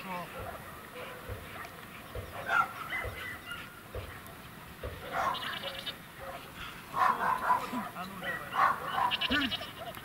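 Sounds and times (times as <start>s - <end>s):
dog barking: 0.3s - 1.4s, 2.2s - 3.8s, 5.0s - 9.4s.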